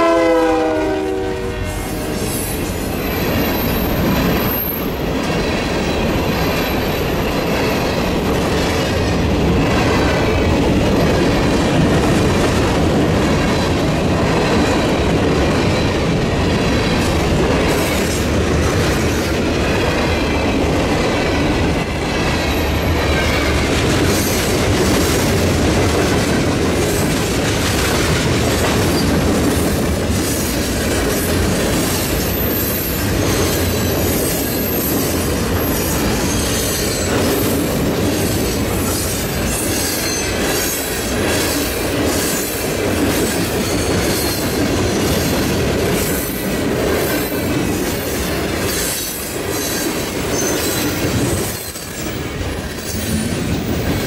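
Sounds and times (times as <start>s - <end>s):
high wheel squeal: 2.0s - 5.0s, 32.2s - 37.6s
freight train wheels clicking: 2.0s - 54.0s.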